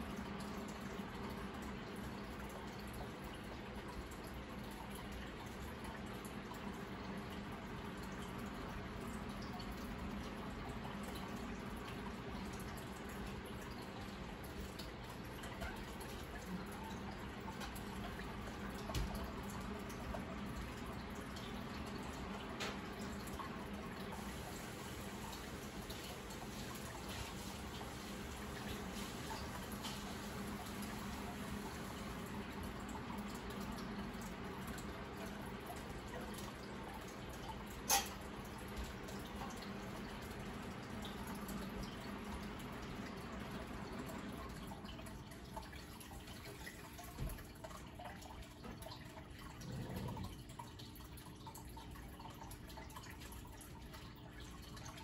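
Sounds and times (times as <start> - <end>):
aquarium water bubbling: 0.0 - 55.0
small water drips: 0.0 - 55.0
faint low hum: 38.5 - 55.0.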